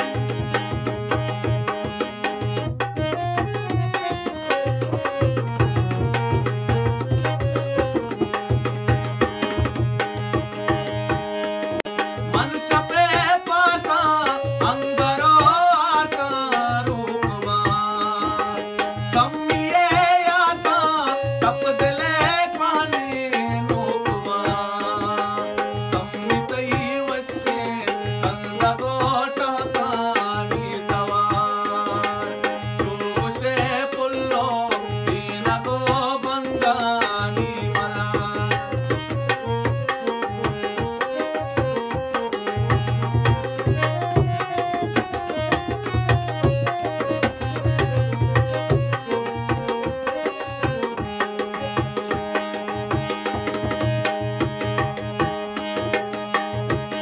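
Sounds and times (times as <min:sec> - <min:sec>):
fast hand drum rhythm: 0:00.0 - 0:57.0
harmonium melody: 0:00.0 - 0:57.0
man singing: 0:12.0 - 0:57.0.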